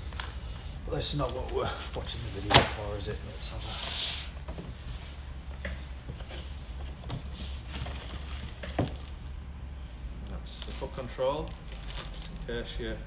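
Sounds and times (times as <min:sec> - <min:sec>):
low steady hum: 0:00.0 - 0:13.0
packaging rustling and knocking: 0:07.0 - 0:09.2.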